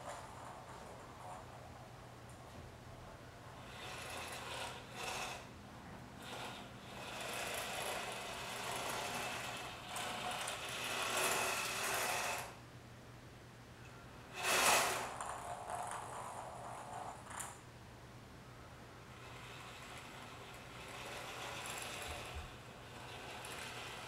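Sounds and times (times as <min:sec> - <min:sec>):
thin high motor whine: 0:03.5 - 0:12.6, 0:13.8 - 0:17.6, 0:18.5 - 0:24.0
toy car motors whirring: 0:03.6 - 0:05.5, 0:06.2 - 0:12.6, 0:14.3 - 0:17.6, 0:19.2 - 0:24.0.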